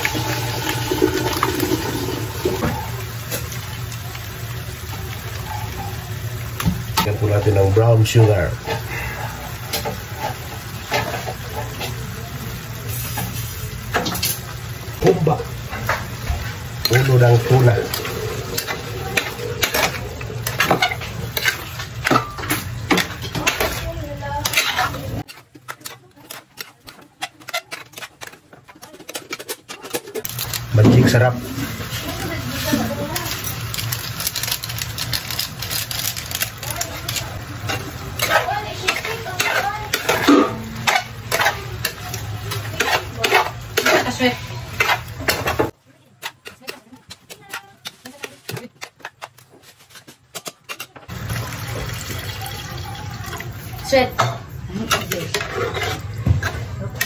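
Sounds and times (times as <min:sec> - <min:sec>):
sauce sizzling: 0:00.0 - 0:28.4, 0:30.2 - 0:46.2, 0:50.3 - 0:57.0
metal spatula scraping frying pan: 0:15.6 - 0:51.1, 0:53.9 - 0:57.0.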